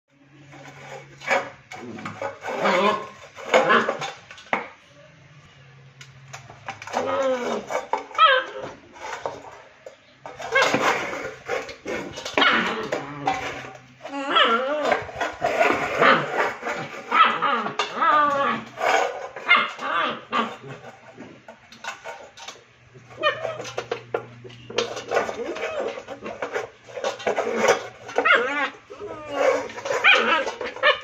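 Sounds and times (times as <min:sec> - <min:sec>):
puppy barking and whimpering: 0:07.0 - 0:08.7, 0:14.1 - 0:15.0, 0:17.1 - 0:18.8, 0:19.4 - 0:20.7, 0:23.1 - 0:23.8, 0:28.0 - 0:31.0.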